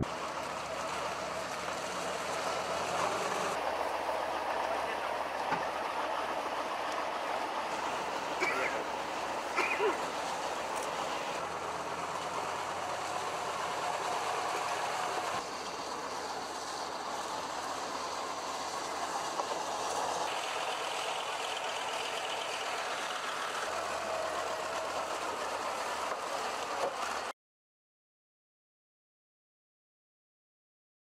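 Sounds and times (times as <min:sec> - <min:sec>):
tracked vehicle engine running: 0:00.0 - 0:27.3.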